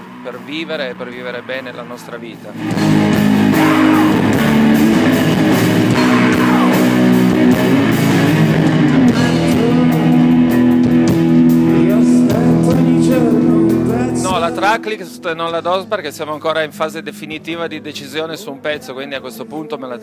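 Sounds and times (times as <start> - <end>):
drums: 0.0 - 16.4
electric guitars sustained chords: 2.5 - 15.9.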